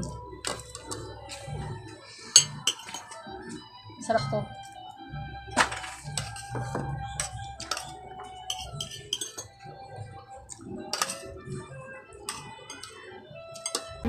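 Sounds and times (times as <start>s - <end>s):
cutlery clinking on plates: 0.0s - 3.3s, 5.5s - 9.6s, 10.5s - 14.0s
faint music: 0.0s - 14.0s.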